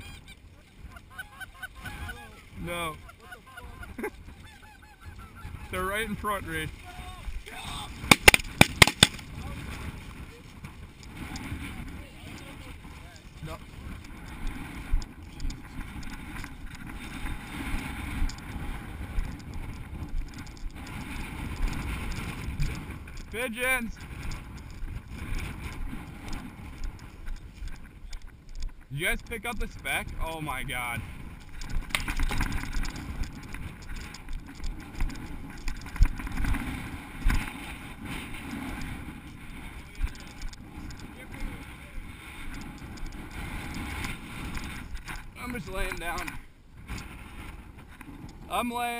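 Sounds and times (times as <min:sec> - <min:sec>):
wind buffeting microphone: 0:00.0 - 0:48.9
sharp thumps: 0:08.0 - 0:09.3.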